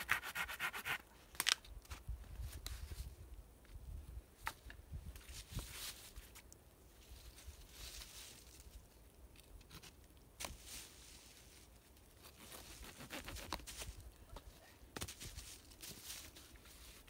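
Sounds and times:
rustling and scraping of leaf litter: 5.2 - 9.1, 9.7 - 14.0, 15.0 - 17.0.

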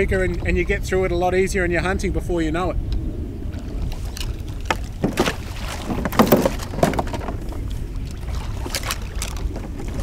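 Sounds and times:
wind rumble on microphone: 0.0 - 10.0
splashing in shallow water: 3.5 - 10.0.

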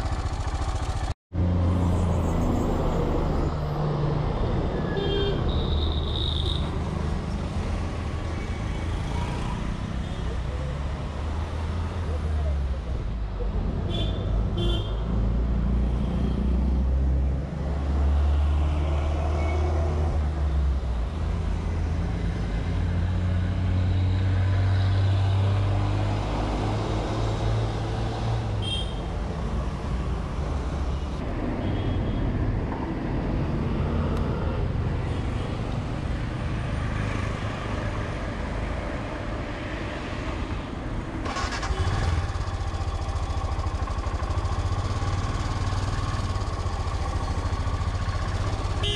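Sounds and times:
motorcycle engine idling: 0.0 - 1.1, 41.3 - 48.9
street traffic: 0.0 - 48.9.

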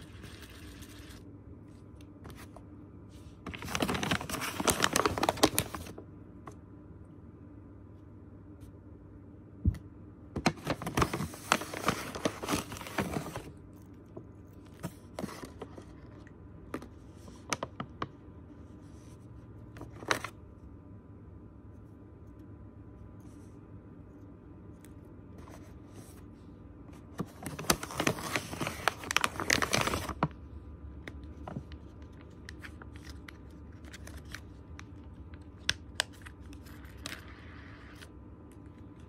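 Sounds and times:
paper packaging rustling: 3.3 - 6.0, 10.4 - 16.2, 19.8 - 20.4, 27.0 - 30.4, 31.4 - 34.9.

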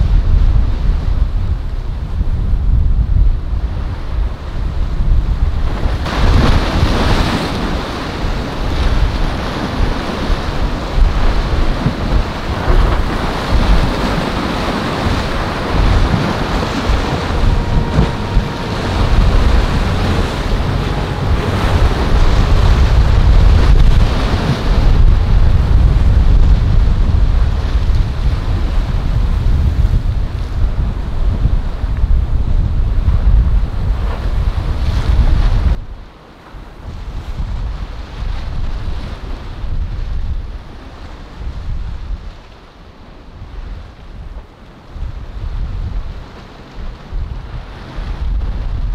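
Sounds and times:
waves breaking: 0.0 - 48.9
wind buffeting microphone: 0.0 - 48.9
faint boat engine: 1.9 - 37.1.

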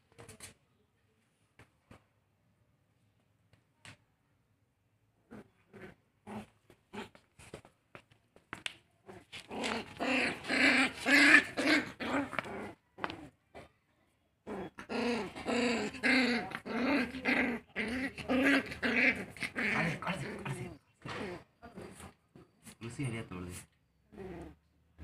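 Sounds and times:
puppies growling: 9.0 - 13.4, 14.4 - 22.2, 24.1 - 25.0.

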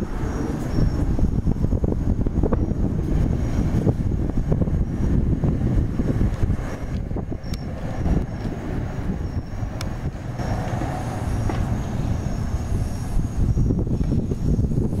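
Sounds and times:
crickets and grasshoppers chirping: 0.0 - 15.0
wind buffeting microphone: 0.0 - 15.0.

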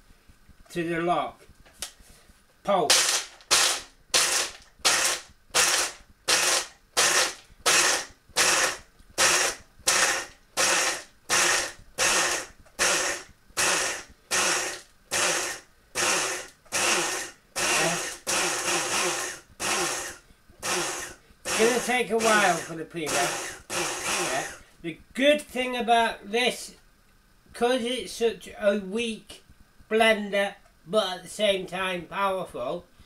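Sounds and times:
blender pulsing: 2.9 - 24.6
blade chopping peanuts: 20.7 - 24.5.

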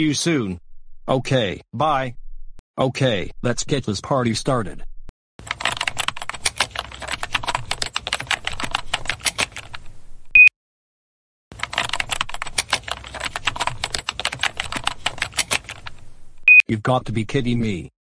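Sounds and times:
rapid typing on laptop keyboard: 5.4 - 9.8, 11.6 - 16.0.

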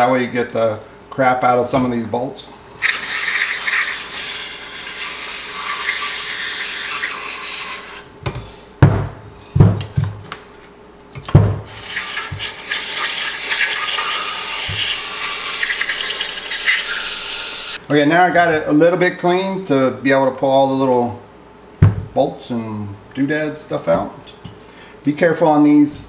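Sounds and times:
aerosol spray hissing: 2.8 - 8.1, 11.7 - 17.8.

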